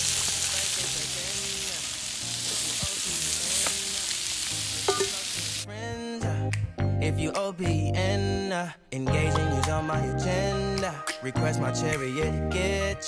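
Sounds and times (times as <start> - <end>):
meat sizzling on grill: 0.0 - 5.7.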